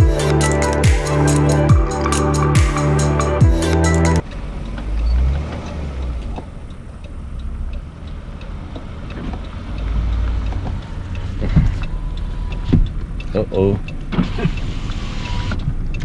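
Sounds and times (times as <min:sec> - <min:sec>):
car rumble inside cabin: 0:04.2 - 0:16.0
faint ticks: 0:06.4 - 0:16.0.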